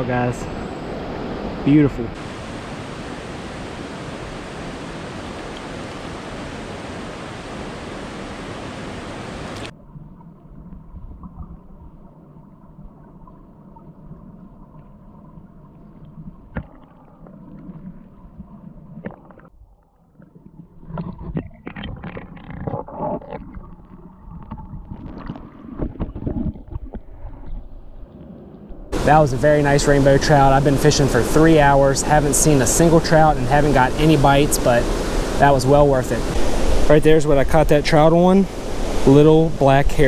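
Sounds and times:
creek water rushing: 0:00.0 - 0:09.7, 0:28.9 - 0:40.0
faint steady hum: 0:00.0 - 0:19.0
muffled underwater current: 0:16.0 - 0:40.0.

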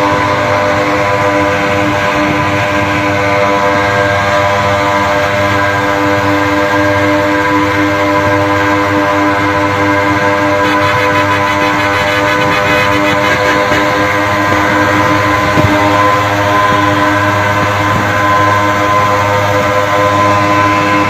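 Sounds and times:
two-stroke engines racing: 0:00.0 - 0:21.0.

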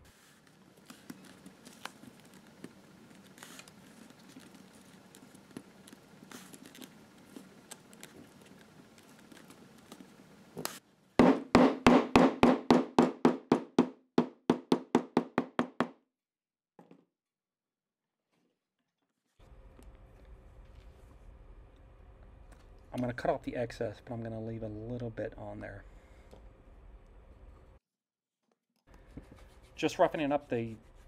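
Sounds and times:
mallet tapping leather: 0:11.2 - 0:15.9.

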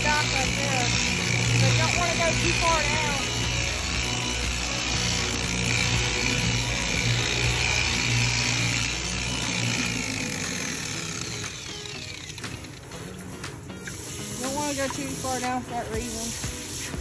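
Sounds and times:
power tool whirring: 0:00.0 - 0:17.0.

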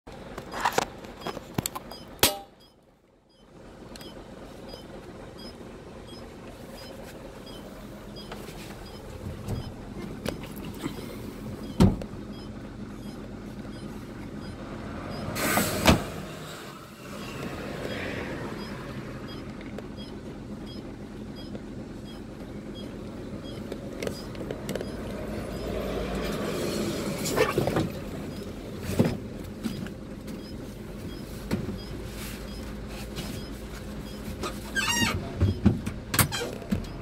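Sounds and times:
diesel truck engine running: 0:00.1 - 0:37.0
short hiss: 0:15.4 - 0:16.1
sharp knocks and clicks: 0:21.4 - 0:26.4.

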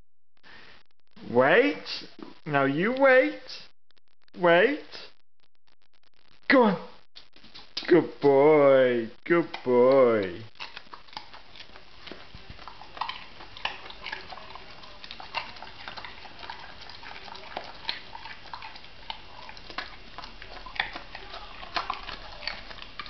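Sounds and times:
dog crunching a carrot: 0:09.4 - 0:23.0.

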